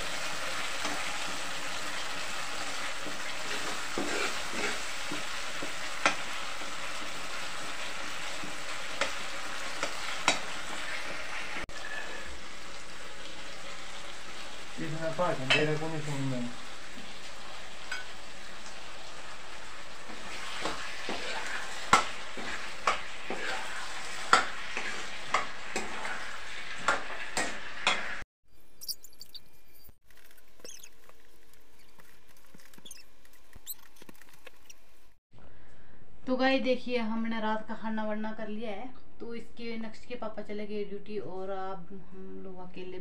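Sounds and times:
vegetables sizzling in pan: 0.0s - 28.2s.

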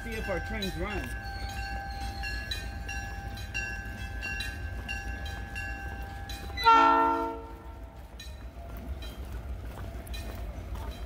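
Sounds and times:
wind chimes ringing: 0.0s - 6.7s
train horn blast: 6.6s - 7.8s.

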